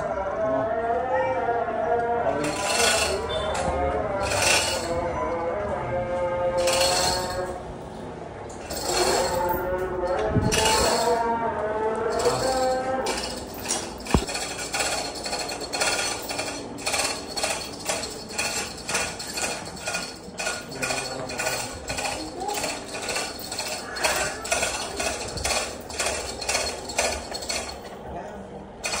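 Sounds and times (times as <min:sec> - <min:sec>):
hoist chain clinking and rattling: 0:02.4 - 0:03.6, 0:04.2 - 0:05.1, 0:06.6 - 0:07.6, 0:08.5 - 0:11.3, 0:12.1 - 0:28.0.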